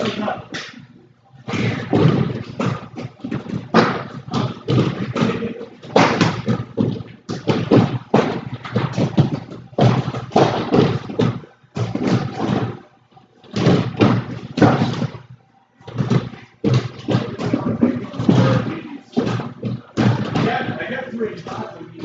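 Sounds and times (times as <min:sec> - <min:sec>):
punches and kicks on heavy bag: 0:01.5 - 0:12.7.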